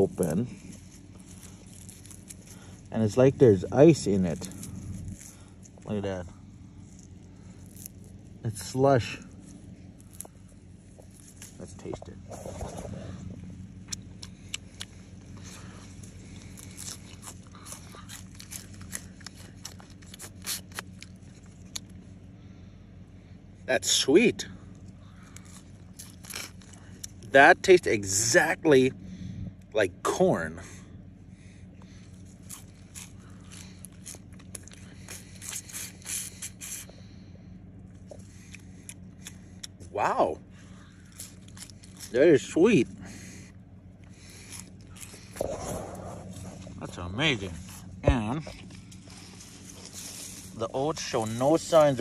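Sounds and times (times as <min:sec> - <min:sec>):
person chewing frozen stalk: 0:00.0 - 0:22.4, 0:24.6 - 0:27.4, 0:31.0 - 0:52.0.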